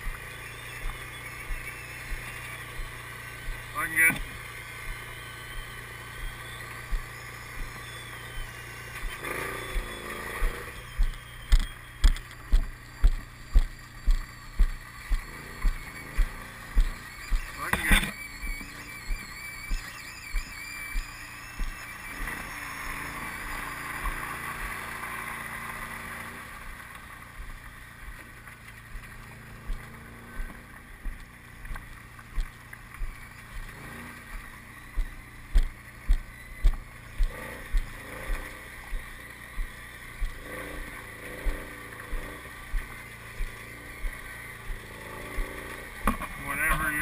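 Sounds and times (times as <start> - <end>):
regular thumps: 0.0 - 22.3, 26.6 - 47.0
faint engine hum: 0.0 - 47.0.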